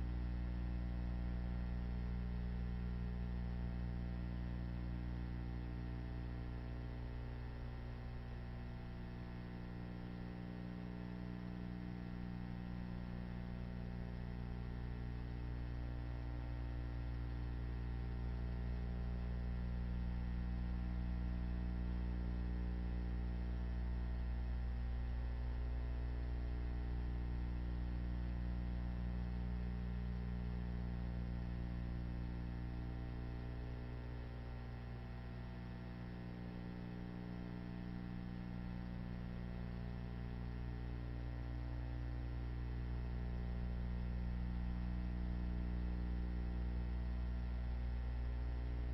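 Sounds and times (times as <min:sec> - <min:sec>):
electrical mains hum: 0:00.0 - 0:48.9.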